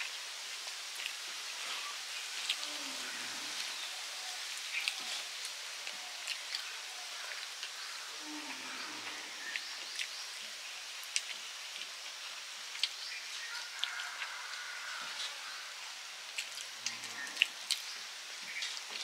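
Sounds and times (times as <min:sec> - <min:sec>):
steady hiss: 0:00.0 - 0:19.0
wet chewing smacks and clicks: 0:04.8 - 0:06.7, 0:09.4 - 0:10.2, 0:11.0 - 0:14.3, 0:16.3 - 0:17.9.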